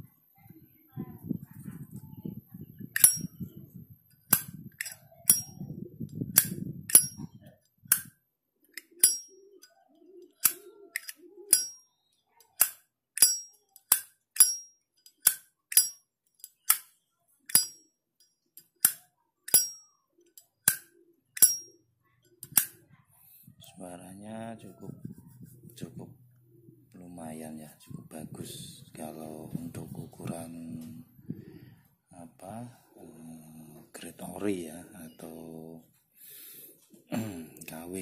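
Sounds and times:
lighter lid clicking open and shut: 0:03.0 - 0:03.3, 0:04.3 - 0:05.5, 0:06.3 - 0:07.2, 0:07.9 - 0:08.1, 0:10.4 - 0:11.8, 0:18.8 - 0:19.8, 0:22.4 - 0:22.7.

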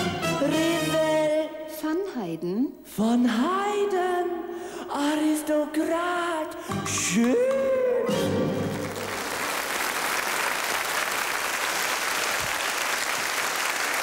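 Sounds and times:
audience applauding: 0:07.2 - 0:14.0.

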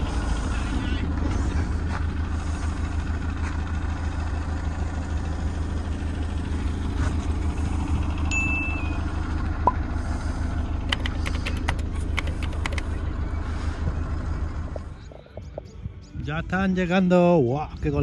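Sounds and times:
engine low rumble: 0:00.0 - 0:18.0
brief high tone: 0:08.3 - 0:09.2.

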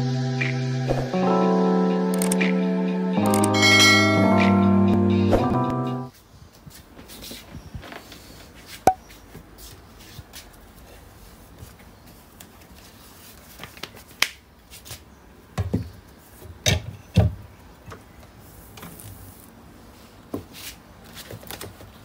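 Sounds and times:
sharp click: 0:02.2 - 0:02.5.

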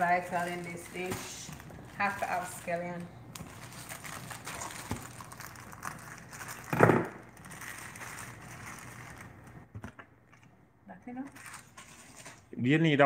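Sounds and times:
plastic sleeve crinkling: 0:00.0 - 0:09.7, 0:11.2 - 0:12.5.

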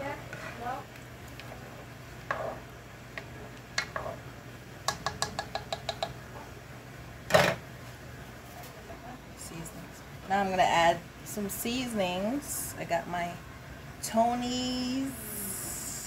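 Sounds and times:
spoon tapping a pot and can: 0:04.9 - 0:06.2.

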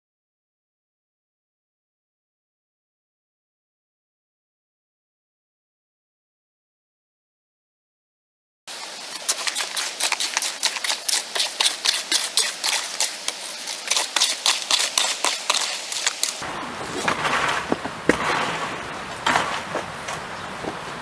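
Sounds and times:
tool scraping mortar in plastic tub: 0:08.7 - 0:20.9
footsteps scuffing over loose rocks: 0:08.8 - 0:16.4.

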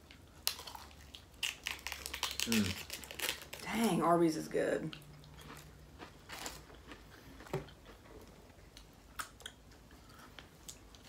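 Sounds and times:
chewing food: 0:04.9 - 0:11.0.

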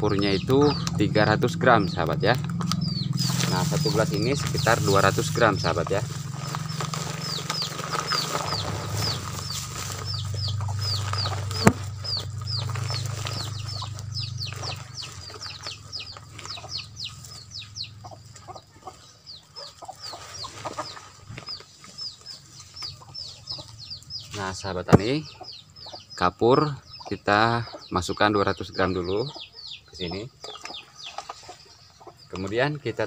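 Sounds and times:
low hum: 0:00.0 - 0:18.0
birds chirping: 0:00.0 - 0:33.0.

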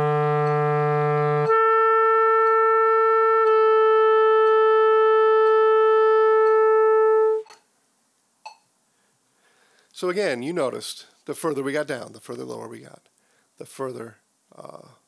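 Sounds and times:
clarinet slurring and holding note: 0:00.0 - 0:07.5.

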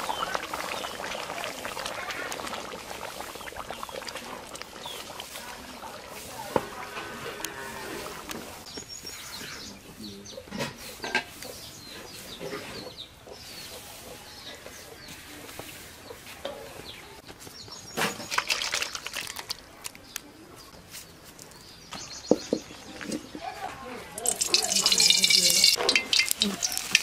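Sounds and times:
small birds chirping: 0:00.0 - 0:06.5, 0:08.6 - 0:27.0
chickens clucking: 0:09.7 - 0:17.0, 0:24.2 - 0:27.0.

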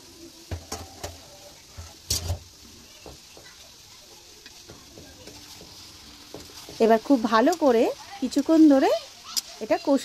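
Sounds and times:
faint frying sizzle: 0:00.0 - 0:10.0
spatula scraping metal pan: 0:00.6 - 0:02.4.

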